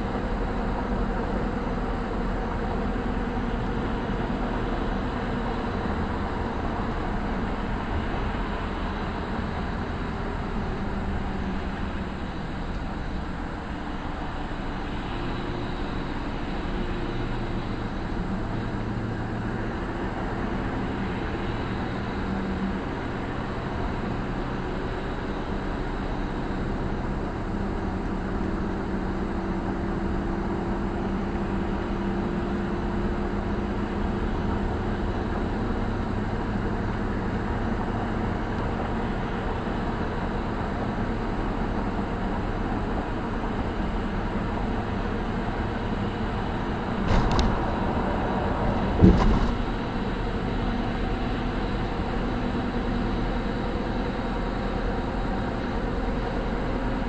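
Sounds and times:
low engine drone: 0:00.0 - 0:57.0.

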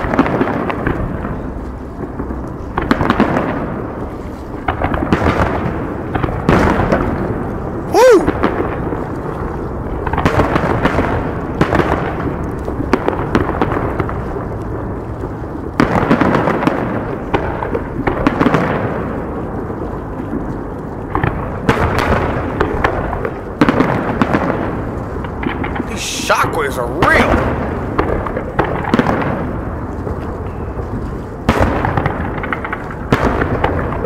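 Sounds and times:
fireworks booming: 0:00.0 - 0:34.0
sharp fireworks bangs: 0:00.0 - 0:34.0.

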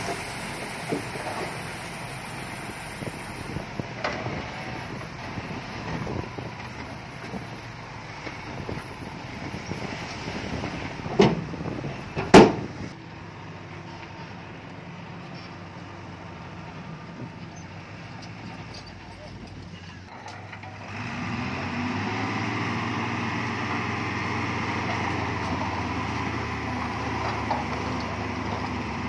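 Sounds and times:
heavy machinery running: 0:00.0 - 0:13.1.

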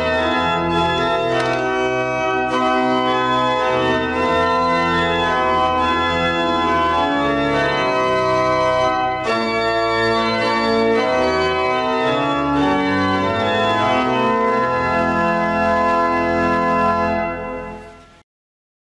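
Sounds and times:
organ playing sustained chords: 0:00.0 - 0:18.2.

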